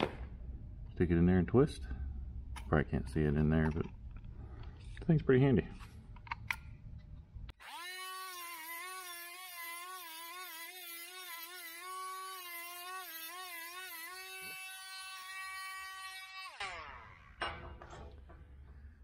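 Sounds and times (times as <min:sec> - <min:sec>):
rotary tool whining: 0:07.6 - 0:18.2.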